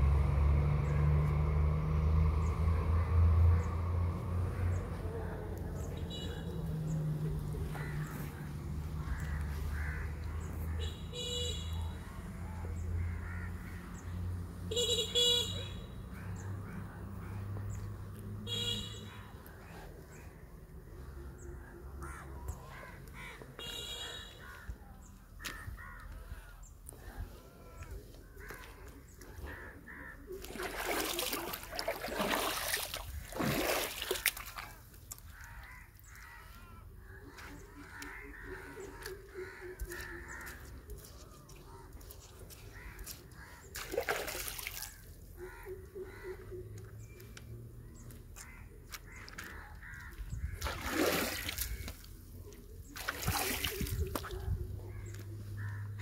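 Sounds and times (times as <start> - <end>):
crows cawing: 7.6 - 11.3, 13.0 - 13.8, 21.6 - 32.5, 33.7 - 47.0, 47.8 - 52.3, 53.0 - 56.0
splashing in water: 30.4 - 35.7, 43.0 - 45.2, 50.4 - 54.5.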